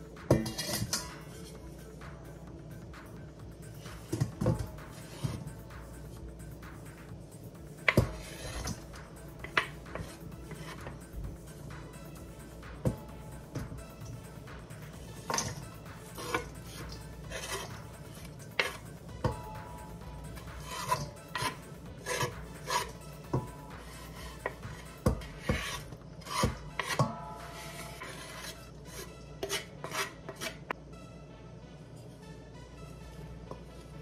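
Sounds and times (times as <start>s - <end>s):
metal bowl ringing: 0.3s - 1.5s, 18.6s - 25.3s, 26.6s - 28.5s
spatula scraping on cutting board: 0.4s - 1.6s, 3.7s - 5.6s, 7.8s - 11.1s, 14.8s - 19.0s, 20.4s - 30.7s.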